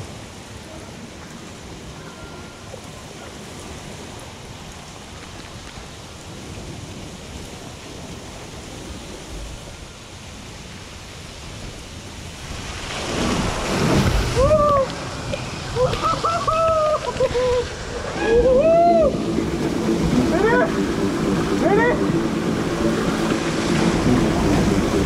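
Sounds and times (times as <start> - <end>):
water spraying: 12.3 - 25.0
wind rushing: 13.0 - 25.0.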